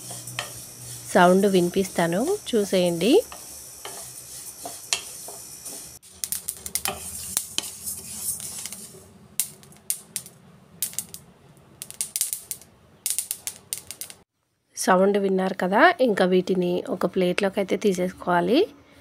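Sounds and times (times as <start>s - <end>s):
seeds sizzling and popping: 0.0s - 14.3s.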